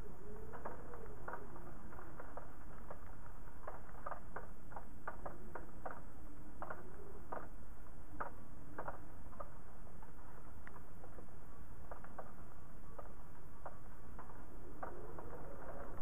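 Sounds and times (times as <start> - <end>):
raindrops tapping: 0.0 - 16.0.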